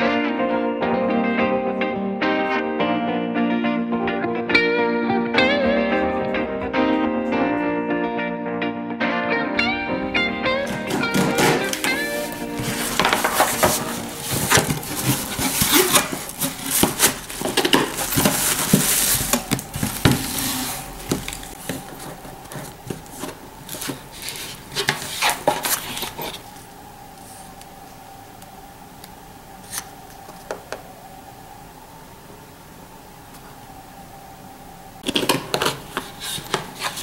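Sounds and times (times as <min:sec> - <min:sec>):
faint steady hum: 0:09.6 - 0:37.0
cardboard box scraping and knocking: 0:10.6 - 0:26.2
booklet pages turning: 0:10.6 - 0:26.6, 0:35.0 - 0:37.0
paper rustling: 0:10.6 - 0:27.6, 0:35.0 - 0:37.0.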